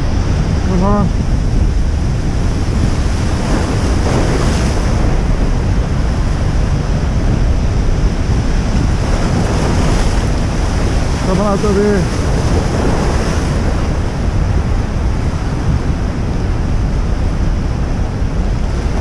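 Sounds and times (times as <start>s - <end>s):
surf breaking on rocks: 0.0s - 17.3s
wind buffeting microphone: 0.0s - 19.0s.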